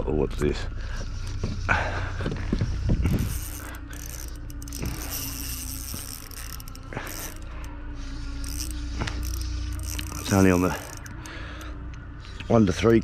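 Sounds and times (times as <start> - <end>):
fishing reel whirring: 2.6 - 13.0.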